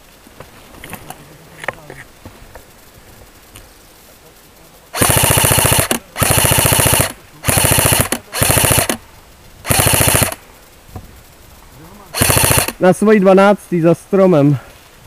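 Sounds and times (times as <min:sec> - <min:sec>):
airsoft rifle firing bursts: 0:04.9 - 0:09.0, 0:09.6 - 0:10.4, 0:12.2 - 0:12.9.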